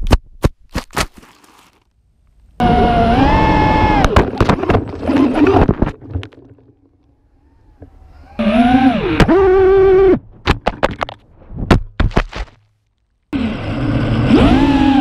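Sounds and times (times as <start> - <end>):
drone motors whining: 2.6 - 5.7, 6.3 - 10.2, 13.4 - 15.0.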